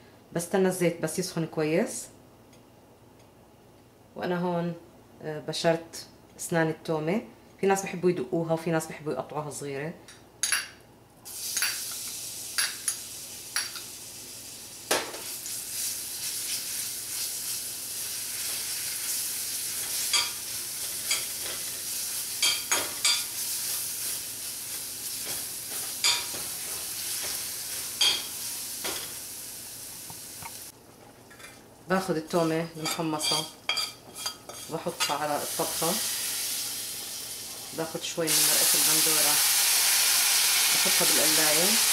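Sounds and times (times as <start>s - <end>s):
garlic sizzling in hot oil: 11.3s - 30.8s, 33.7s - 41.9s.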